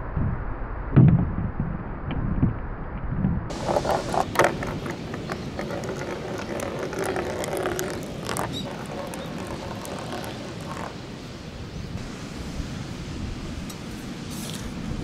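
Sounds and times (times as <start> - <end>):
ball rolling on plastic track: 3.5 - 11.1
wind hiss: 8.6 - 15.0.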